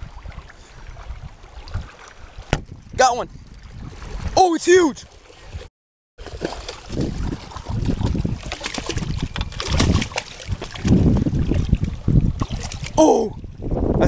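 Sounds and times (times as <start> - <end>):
wind buffeting microphone: 0.0 - 4.4, 6.3 - 14.0
fish splashing in water: 6.2 - 13.0.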